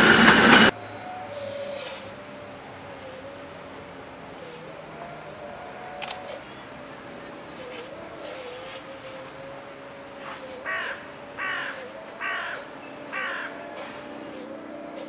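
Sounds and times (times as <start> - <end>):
steady hum: 0.0 - 5.0
crow cawing: 10.2 - 14.1.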